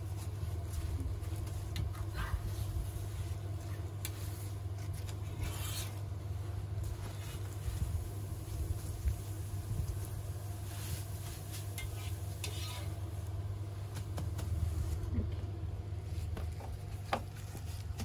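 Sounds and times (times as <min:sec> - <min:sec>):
steady low hum: 0:00.0 - 0:18.0
metal spatula scraping on griddle: 0:11.7 - 0:13.0.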